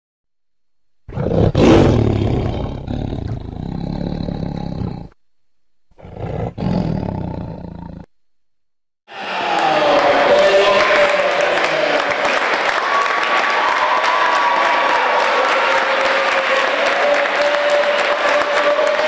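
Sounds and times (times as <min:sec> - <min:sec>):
big cat roaring: 0:01.1 - 0:05.2, 0:05.9 - 0:08.1.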